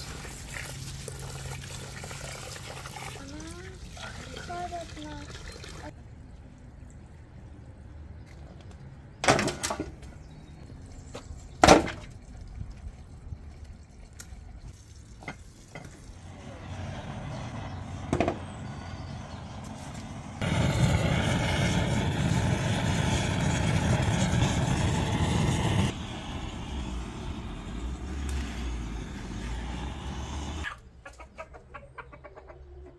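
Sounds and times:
rushing noise: 19.6 - 30.7.

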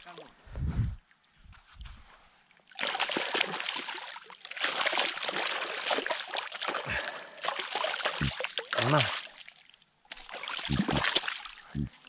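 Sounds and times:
fish thrashing and splashing in water: 2.6 - 11.6.

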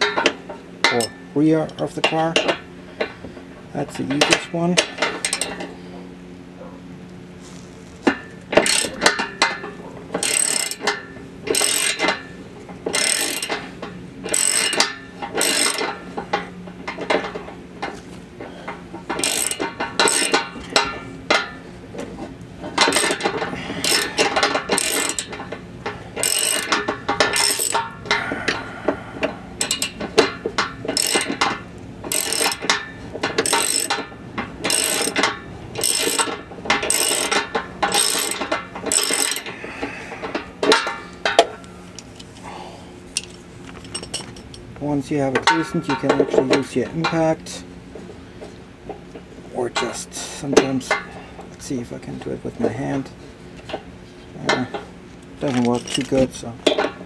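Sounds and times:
ratchet wrench clicking: 8.6 - 9.2, 10.2 - 12.2, 12.9 - 13.6, 14.3 - 16.0, 19.1 - 21.5, 22.8 - 25.4, 26.2 - 27.9, 29.6 - 32.8, 33.4 - 39.5.

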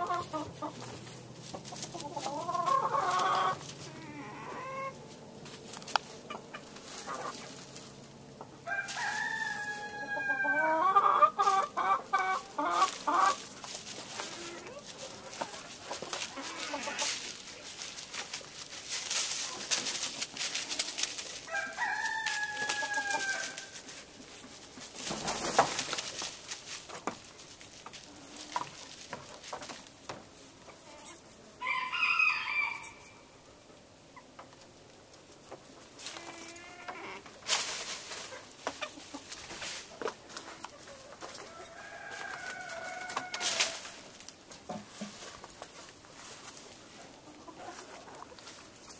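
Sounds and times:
rustling and clicking in dry leaves: 0.0 - 31.2, 34.4 - 48.9
rooster crowing: 8.6 - 11.0, 21.5 - 23.8, 31.6 - 33.2, 41.4 - 43.8.

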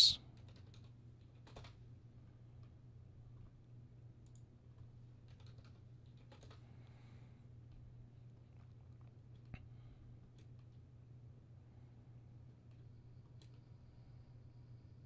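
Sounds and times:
computer keyboard and mouse clicks: 0.4 - 1.8, 5.2 - 6.6.

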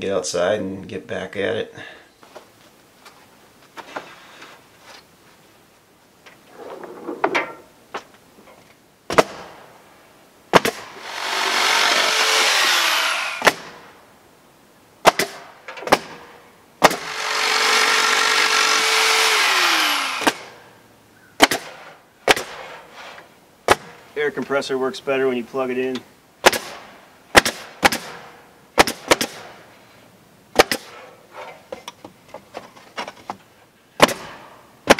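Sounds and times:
power tool motor running: 10.9 - 13.4, 17.0 - 20.5.

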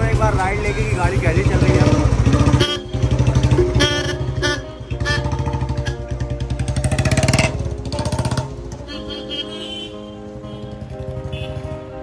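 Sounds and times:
motorcycle engine running: 0.0 - 9.4, 10.5 - 12.0
music: 0.0 - 12.0.

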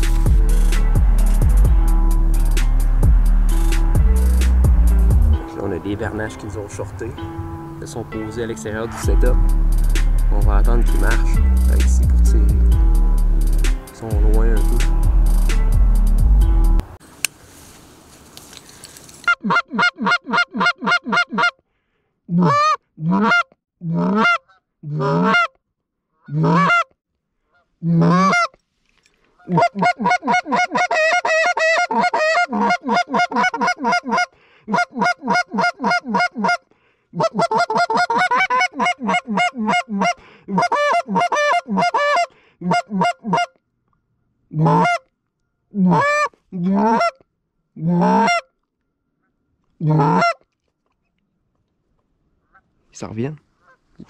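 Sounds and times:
faint hiss: 17.0 - 19.3
geese honking: 28.0 - 28.5, 29.4 - 36.6, 37.2 - 43.5, 44.6 - 45.0, 45.9 - 47.2, 47.9 - 48.5, 49.9 - 50.4.

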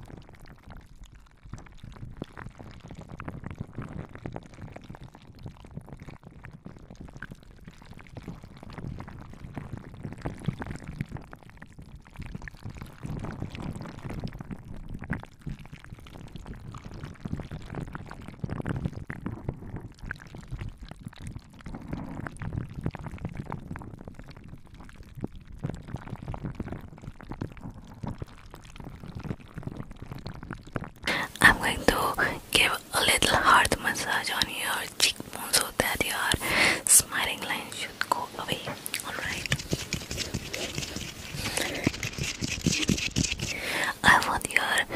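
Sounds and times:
hands rubbing on microphone: 31.2 - 44.9.

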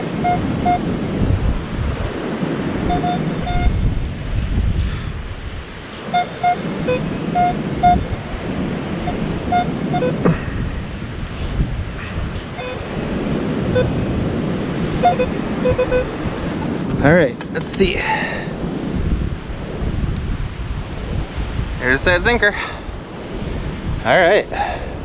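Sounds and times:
surf: 0.0 - 19.6
wind: 0.0 - 25.0
metal detector two-pitch beeps: 0.2 - 0.8, 2.9 - 3.8, 6.1 - 8.1, 9.0 - 10.2, 12.6 - 12.8, 13.7 - 14.0, 15.0 - 16.1.

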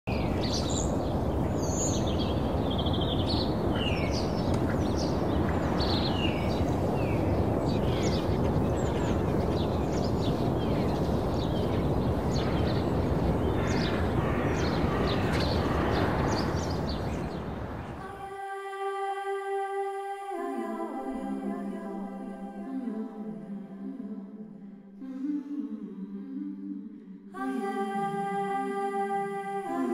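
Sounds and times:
birds chirping and calling: 0.1 - 18.0
steady rushing noise: 0.1 - 18.2.

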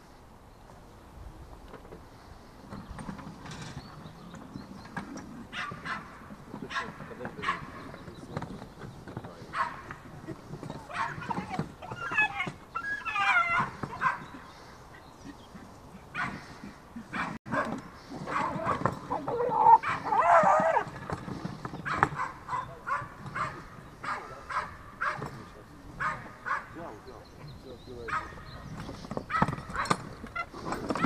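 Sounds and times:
animals yelping: 5.4 - 8.0, 9.4 - 21.1, 21.7 - 27.1, 29.3 - 31.0.

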